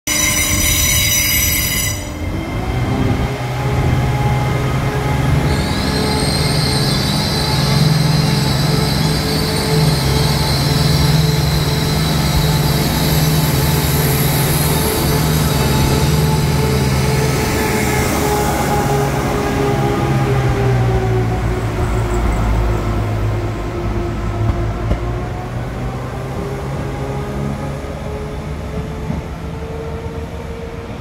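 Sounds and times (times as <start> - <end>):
shrill high tone: 0.1 - 2.4
diesel train engines howling: 0.1 - 31.0.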